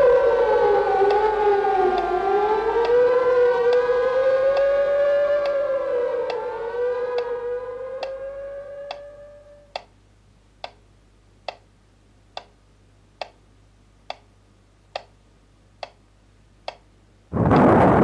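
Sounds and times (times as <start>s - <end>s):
air-raid siren: 0.0s - 9.8s
metronome ticking: 9.7s - 10.0s, 10.6s - 11.7s, 12.3s - 12.6s, 13.2s - 13.4s, 14.0s - 14.3s, 14.9s - 15.2s, 15.8s - 17.0s
loud explosion blast: 17.3s - 18.0s.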